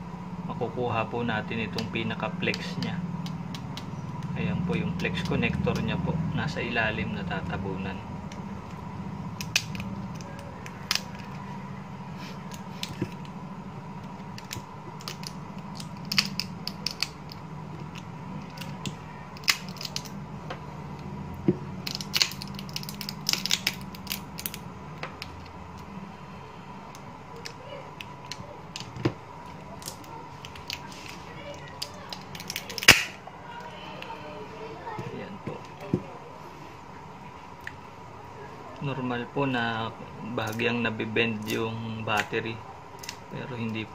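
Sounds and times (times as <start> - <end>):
background hum: 0.0 - 43.9
hands clicking phone parts: 1.7 - 5.9, 9.4 - 11.4, 12.3 - 13.4, 14.0 - 20.2, 21.0 - 25.9, 26.9 - 34.1, 43.0 - 43.2.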